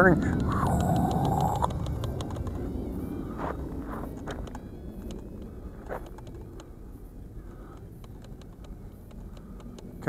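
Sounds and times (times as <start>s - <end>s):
wind buffeting microphone: 0.0s - 10.0s
light clicks and ticks: 0.3s - 2.6s, 4.1s - 6.7s, 7.7s - 10.0s.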